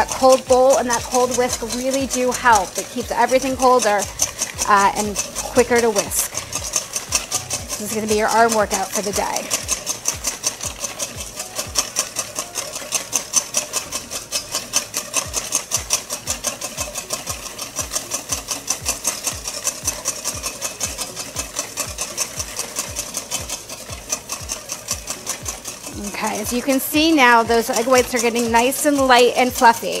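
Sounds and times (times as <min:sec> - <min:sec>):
whisk clattering in metal bowl: 0:00.0 - 0:30.0.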